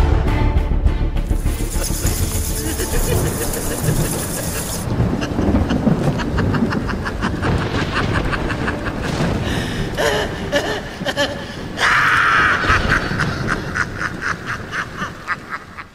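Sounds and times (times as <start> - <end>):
person laughing: 1.4 - 15.9.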